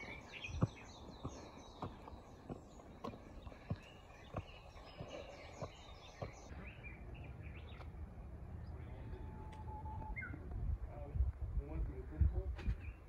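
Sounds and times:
footsteps on stone steps: 0.0 - 6.5
small birds chirping: 0.0 - 13.0.

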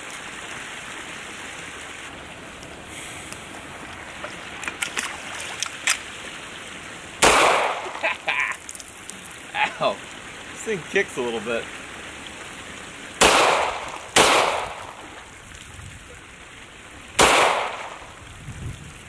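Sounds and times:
creek water over a weir: 0.0 - 19.0
pistol shot: 7.2 - 8.0, 13.2 - 15.0, 17.2 - 18.1.

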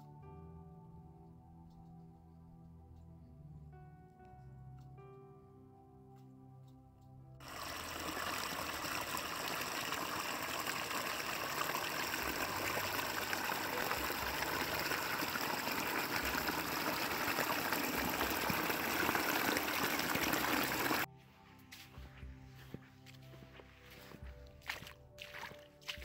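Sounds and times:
waterfall splashing water: 7.4 - 21.1.

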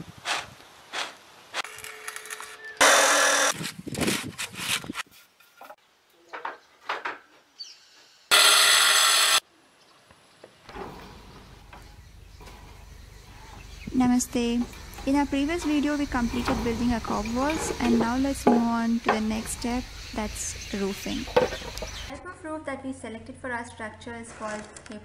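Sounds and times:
loud harsh bursts: 8.3 - 9.4.

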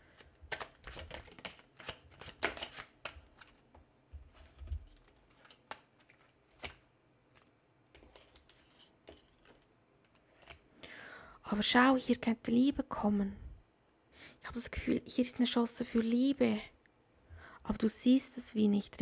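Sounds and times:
cards clicking and tapping: 0.1 - 3.6, 4.3 - 10.6.

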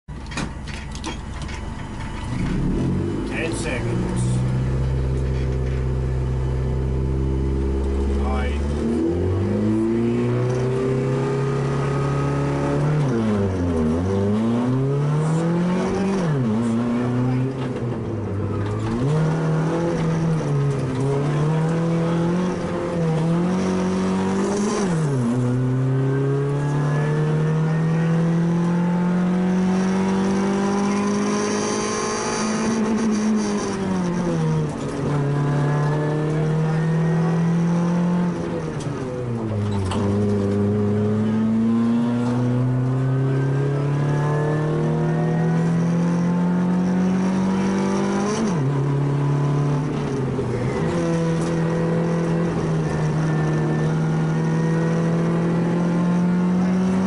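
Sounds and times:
rally car engine revving: 1.9 - 57.0.

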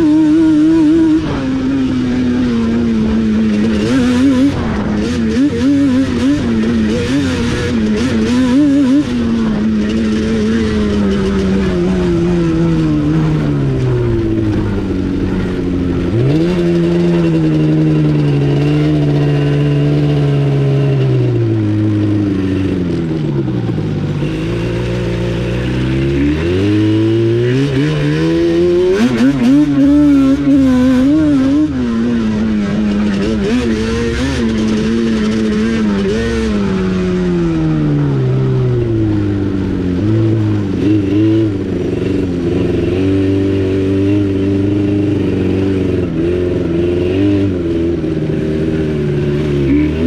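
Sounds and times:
atv engine revving: 0.0 - 50.0.

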